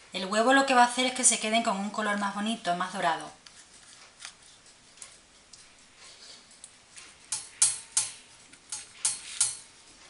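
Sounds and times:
pastry brush swishing strokes: 3.3s - 7.3s
pastry brush tapping: 6.6s - 9.7s.

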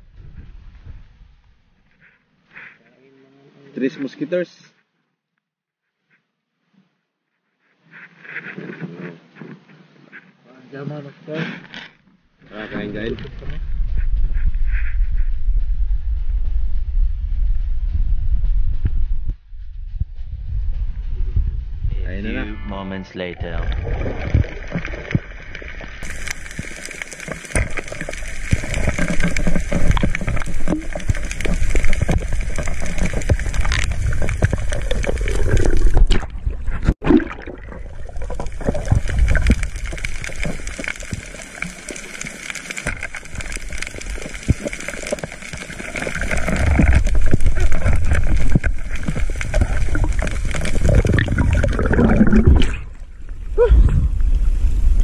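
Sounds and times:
water gurgling underwater: 23.4s - 55.0s.

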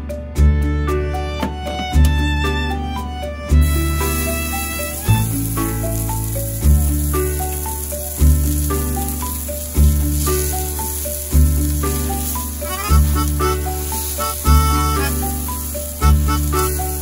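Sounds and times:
background music: 0.0s - 17.0s
burger patty sizzling on griddle: 3.5s - 17.0s.

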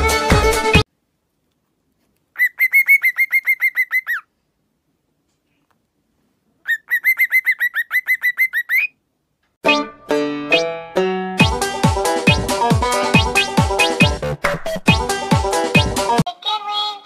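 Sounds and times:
cockatiel chirping: 2.4s - 4.3s, 6.6s - 9.0s.

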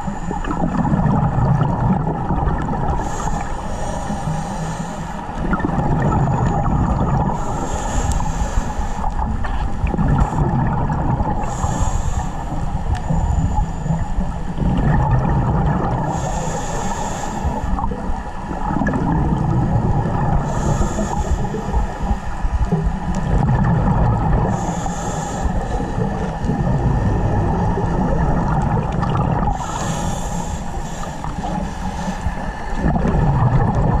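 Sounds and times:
exhaled bubbles rumbling: 0.0s - 34.0s
regulator hissing inhale: 2.9s - 5.4s, 6.2s - 9.6s, 11.4s - 14.6s, 16.0s - 18.4s, 20.4s - 22.6s, 24.4s - 27.2s, 29.5s - 32.8s.

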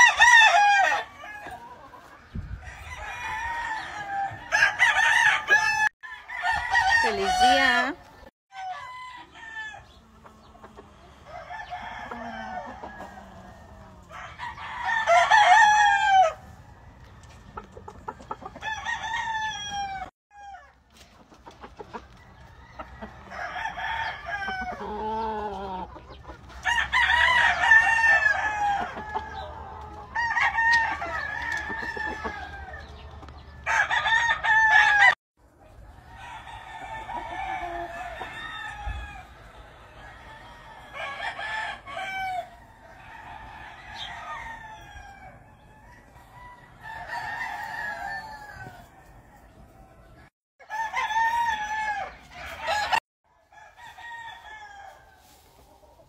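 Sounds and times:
chickens clucking: 0.0s - 4.6s, 9.7s - 14.8s, 15.8s - 18.8s, 20.9s - 33.9s, 54.7s - 56.0s
roosters crowing: 0.0s - 35.2s, 35.8s - 56.0s.

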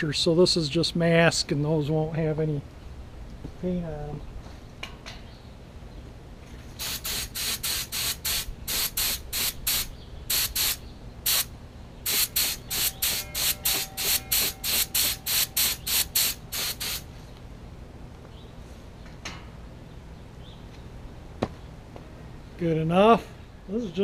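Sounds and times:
paint spray gun hissing: 6.8s - 11.5s, 12.1s - 17.1s.

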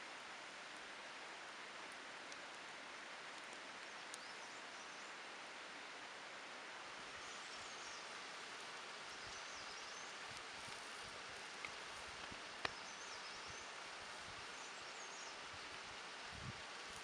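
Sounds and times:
outdoor hiss: 0.0s - 17.0s
bird chirping: 12.6s - 13.8s.

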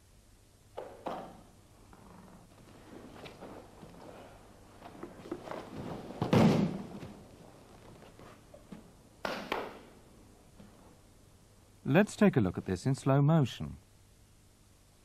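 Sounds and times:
cloth rustling: 2.5s - 8.7s
bodies thudding on a mat: 4.8s - 7.3s.

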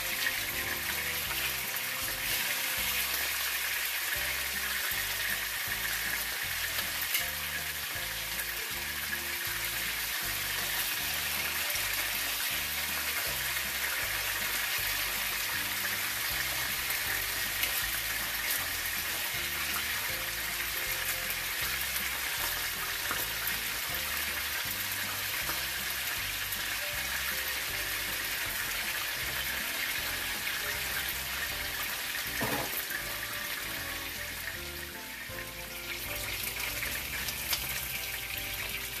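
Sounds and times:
background music with steady beat: 0.0s - 39.0s
fish sizzling in pan: 0.0s - 39.0s.

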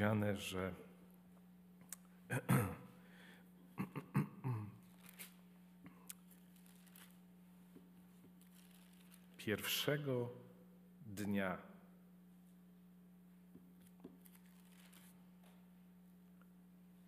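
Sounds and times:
steady low hum: 0.0s - 17.0s
pages rustling: 4.8s - 5.5s, 6.1s - 7.3s, 8.1s - 9.4s, 13.8s - 15.6s.

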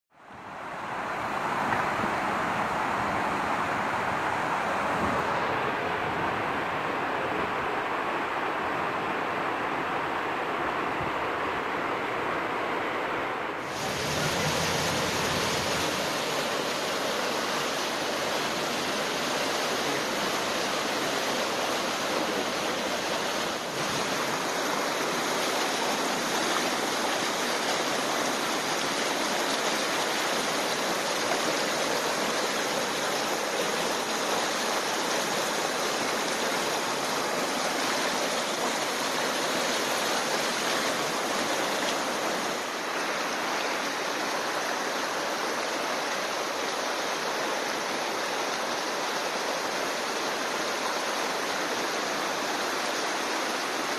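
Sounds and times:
floodwater rushing: 0.1s - 53.9s.

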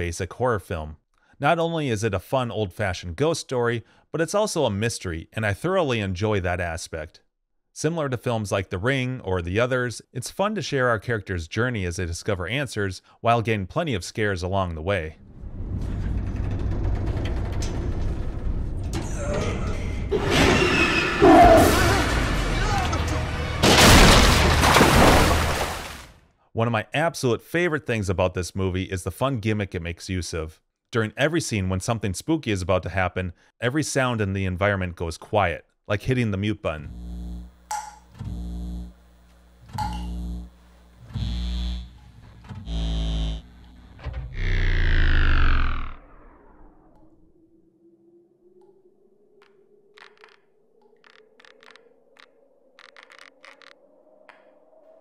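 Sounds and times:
low rumbling drone: 39.8s - 47.5s
short deep horror notes: 42.7s - 46.7s
scattered clicks: 49.4s - 54.5s.

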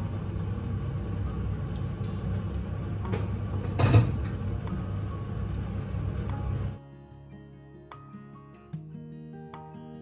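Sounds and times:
steady low hum: 0.0s - 6.8s.

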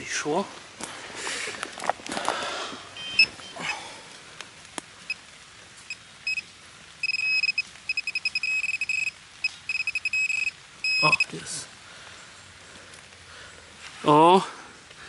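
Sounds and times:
metal detector beeping: 3.0s - 3.6s, 5.9s - 6.4s, 7.0s - 11.3s.

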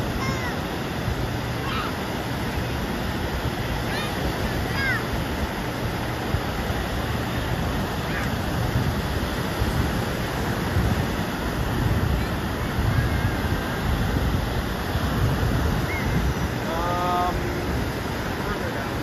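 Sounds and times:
ocean surf breaking: 0.0s - 19.0s.

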